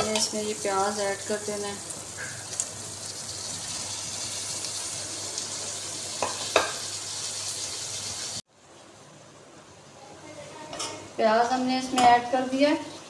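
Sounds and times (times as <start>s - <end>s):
onions sizzling in hot oil: 0.0s - 8.5s, 12.3s - 13.0s
metal ladle knocking pan: 6.2s - 6.8s.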